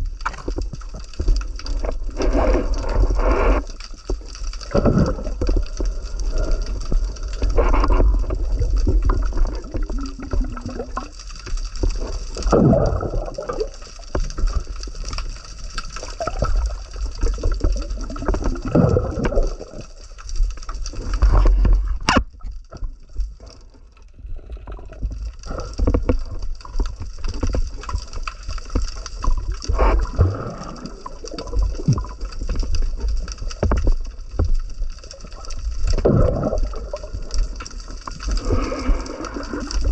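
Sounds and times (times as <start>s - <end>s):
muffled underwater water rumble: 0.0s - 39.9s.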